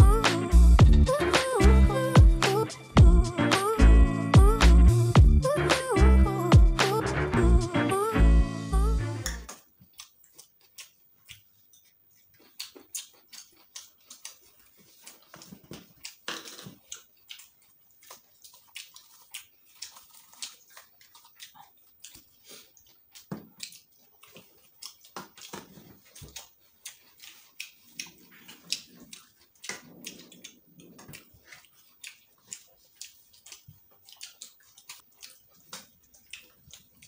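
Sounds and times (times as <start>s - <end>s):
people chewing and smacking lips: 9.2s - 37.0s.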